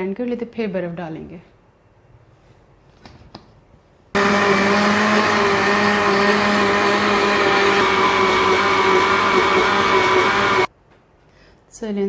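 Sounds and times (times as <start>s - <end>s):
blender motor running: 4.2s - 10.7s.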